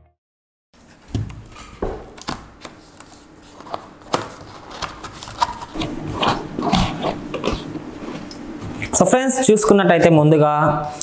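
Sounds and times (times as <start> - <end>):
cardboard rubbing and scraping: 2.8 - 8.9.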